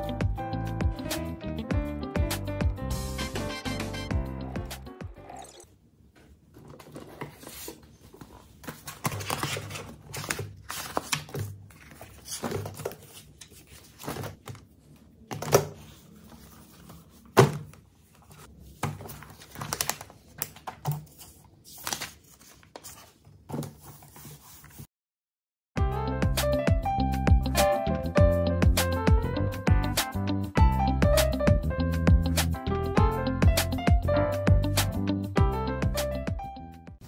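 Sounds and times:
paper rustling: 0:06.5 - 0:24.9.

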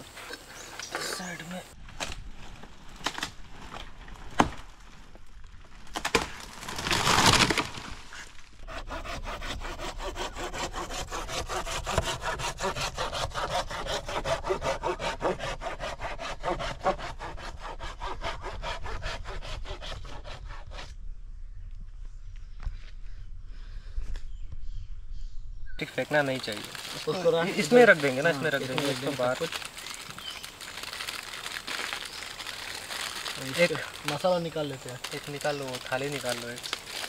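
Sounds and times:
dry branches cracking: 0:01.8 - 0:08.6, 0:25.9 - 0:37.0
wood breaking crash: 0:01.9 - 0:08.4
hand saw cutting log: 0:08.6 - 0:20.9, 0:26.5 - 0:30.0.

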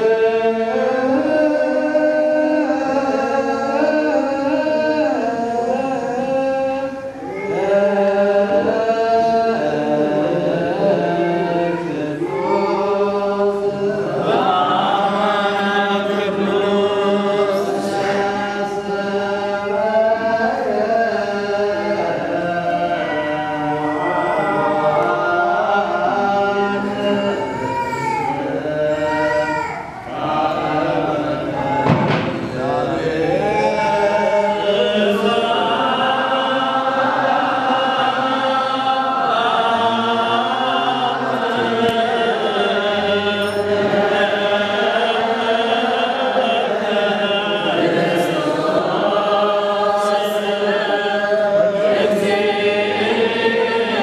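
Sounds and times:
group chanting a hymn: 0:00.0 - 0:54.0
sharp knock: 0:31.8 - 0:32.6.

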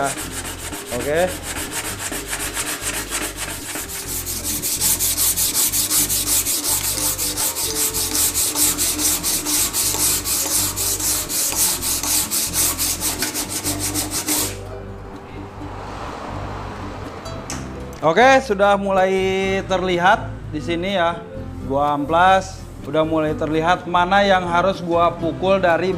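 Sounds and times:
sandpaper scraping on metal: 0:00.0 - 0:14.6.

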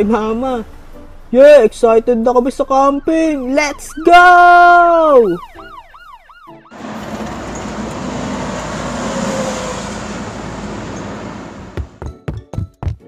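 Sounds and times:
street ambience: 0:06.7 - 0:12.7.

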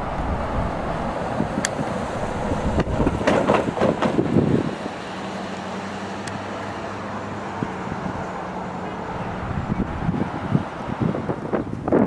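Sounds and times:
gusty rumbling: 0:00.0 - 0:04.8, 0:08.0 - 0:12.0
low engine hum: 0:00.0 - 0:11.9.

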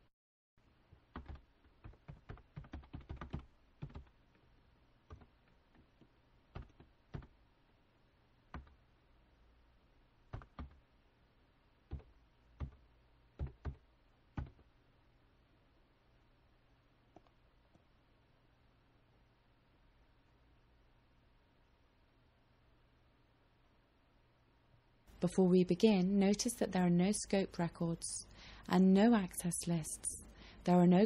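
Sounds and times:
faint typing on a keyboard: 0:00.9 - 0:07.5, 0:08.5 - 0:08.9, 0:10.3 - 0:10.9, 0:11.8 - 0:14.7, 0:17.0 - 0:17.9.

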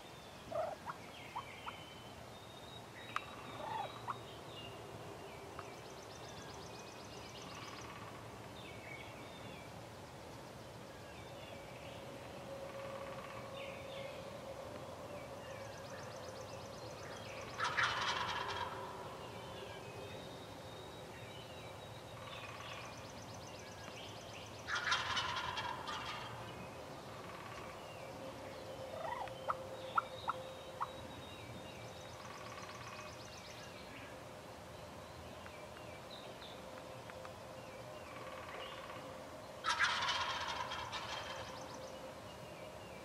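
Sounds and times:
turkeys gobbling: 0:00.5 - 0:01.4, 0:03.6 - 0:03.9, 0:17.6 - 0:18.8, 0:24.7 - 0:26.3, 0:28.9 - 0:29.3, 0:39.6 - 0:41.5.

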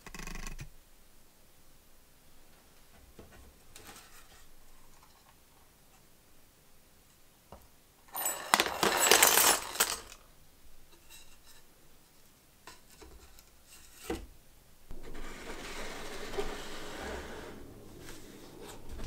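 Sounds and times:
handling and rustling: 0:08.1 - 0:10.2
metal parts clattering into tub: 0:08.1 - 0:10.2.

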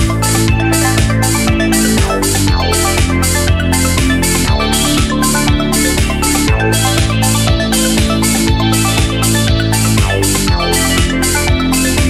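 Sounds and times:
electronic music with steady beat: 0:00.0 - 0:12.0.

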